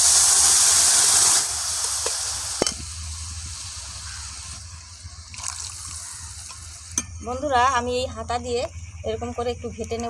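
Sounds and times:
food sizzling in a pan: 0:00.0 - 0:07.1.

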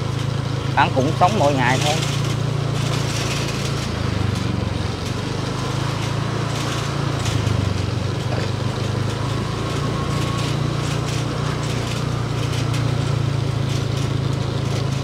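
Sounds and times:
motorbike engine running: 0:00.0 - 0:15.0.

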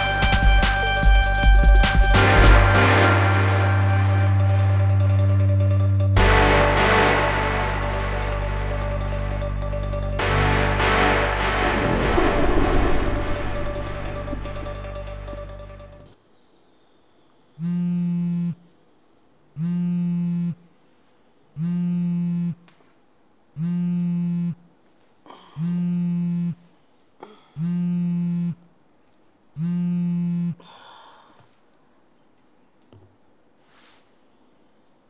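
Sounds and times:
alarm buzzing: 0:17.6 - 0:18.6, 0:19.6 - 0:20.7, 0:21.6 - 0:22.6, 0:23.6 - 0:24.6, 0:25.6 - 0:26.6, 0:27.6 - 0:28.7, 0:29.6 - 0:30.6.

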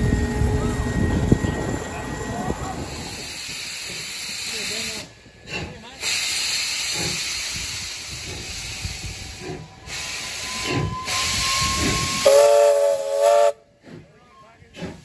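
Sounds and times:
steam locomotive hissing and chuffing: 0:00.0 - 0:15.0
steam whistle blast: 0:10.0 - 0:13.6.

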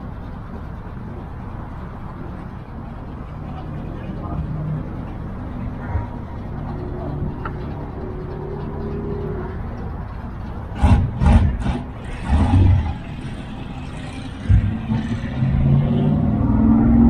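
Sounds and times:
car engines running: 0:00.0 - 0:17.0
engine accelerating: 0:03.5 - 0:17.0
engine rev blips: 0:08.0 - 0:17.0.

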